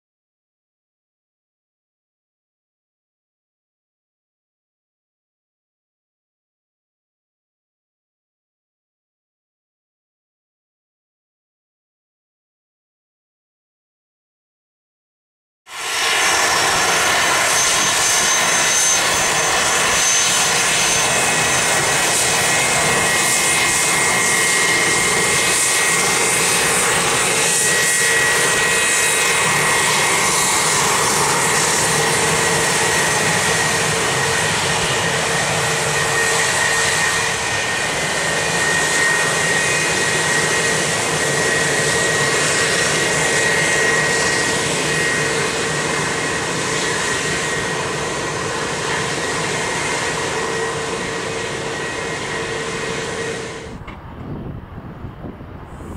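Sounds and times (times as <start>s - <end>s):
jet engines whining: 15.7s - 55.9s
broad rushing noise: 52.9s - 55.9s.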